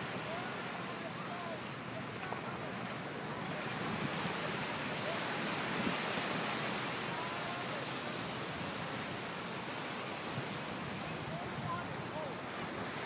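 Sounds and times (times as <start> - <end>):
shallow water at shore: 0.0 - 13.0
wind: 0.0 - 13.0.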